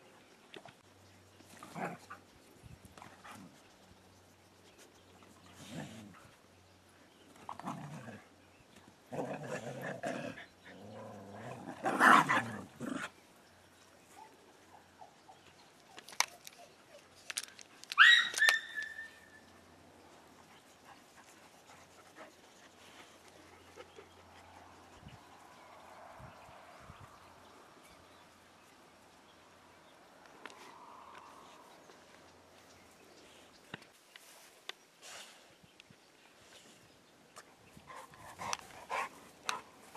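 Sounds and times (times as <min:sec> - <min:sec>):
dog yelping: 0:17.9 - 0:19.4.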